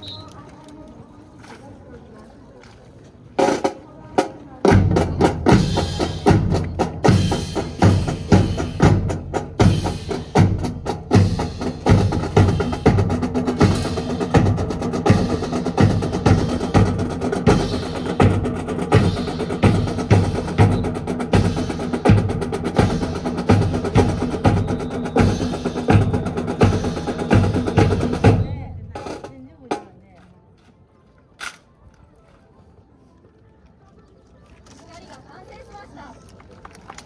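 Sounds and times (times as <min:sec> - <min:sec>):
marching drum cadence: 0:03.4 - 0:30.1.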